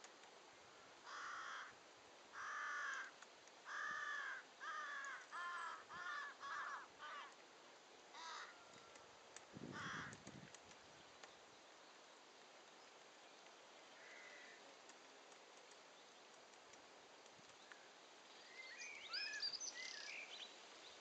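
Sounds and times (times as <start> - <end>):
crow cawing: 1.0 - 7.4, 8.2 - 8.6, 9.7 - 10.2, 14.0 - 14.6.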